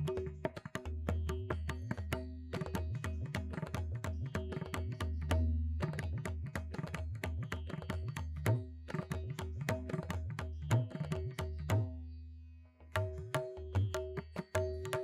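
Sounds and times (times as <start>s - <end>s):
tabla playing quick strokes: 12.9s - 15.0s.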